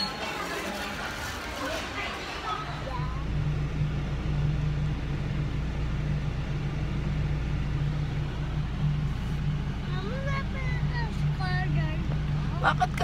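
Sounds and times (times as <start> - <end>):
car rumble inside cabin: 2.8 - 13.0.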